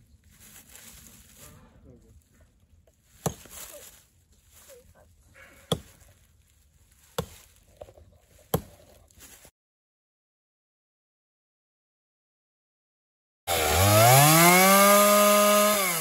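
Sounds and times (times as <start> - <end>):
hatchet chopping tree trunk: 3.1 - 4.0, 5.4 - 6.2, 7.1 - 9.0, 13.5 - 16.0.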